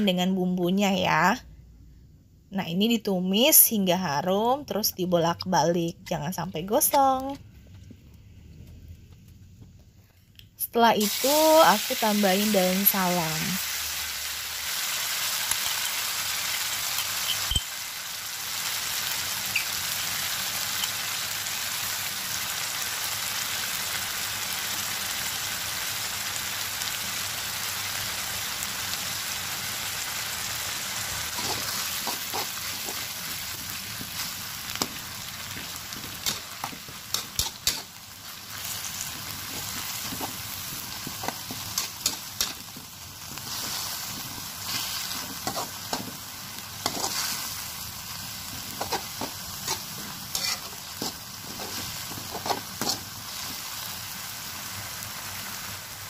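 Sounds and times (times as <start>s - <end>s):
spice paste sizzling in hot oil: 10.6s - 56.0s
metal spatula scraping a pan: 31.3s - 33.5s, 35.6s - 38.0s, 38.6s - 42.7s, 43.4s - 46.2s, 46.8s - 47.6s, 48.6s - 53.7s.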